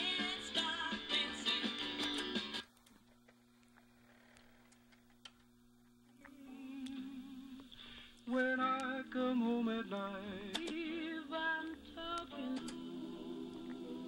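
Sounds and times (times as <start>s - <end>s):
person singing: 0.0s - 2.2s, 6.2s - 14.0s
song playing: 0.0s - 2.6s.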